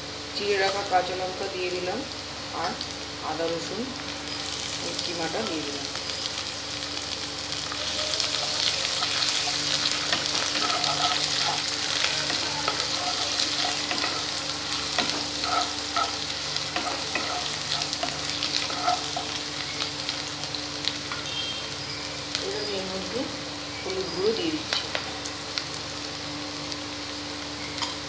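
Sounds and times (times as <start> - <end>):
onions sizzling in hot oil: 0.0 - 28.0
spatula stirring and scraping: 7.9 - 19.5.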